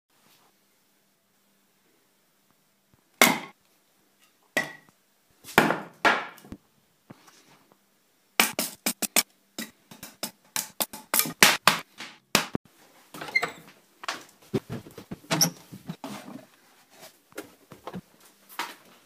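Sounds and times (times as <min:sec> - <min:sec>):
hatchet chopping wood: 0:03.2 - 0:03.6, 0:05.6 - 0:06.4, 0:09.9 - 0:12.6.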